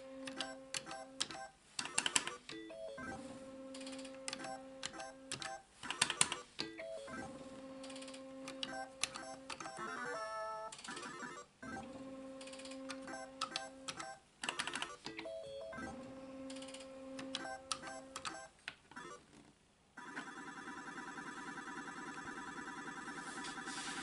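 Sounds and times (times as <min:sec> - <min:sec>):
slot machine electronic tone: 0:08.7 - 0:11.9, 0:20.0 - 0:24.0.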